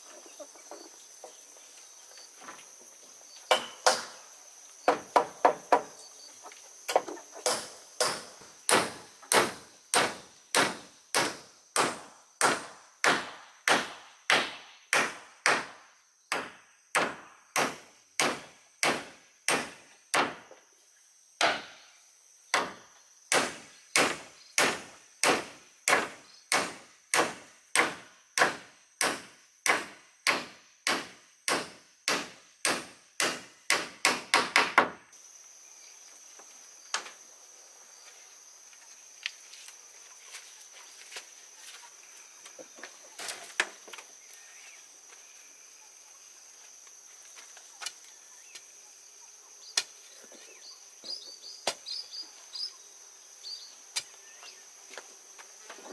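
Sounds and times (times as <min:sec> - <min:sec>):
hand tool striking wood: 0:03.5 - 0:04.2, 0:04.9 - 0:05.9, 0:06.9 - 0:15.7, 0:16.3 - 0:20.4, 0:21.4 - 0:21.8, 0:22.5 - 0:35.0.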